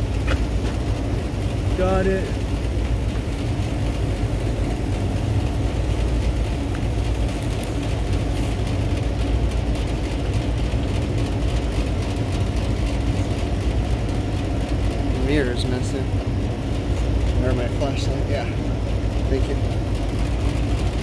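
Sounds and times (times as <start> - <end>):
machinery rumbling and humming: 0.0 - 21.0.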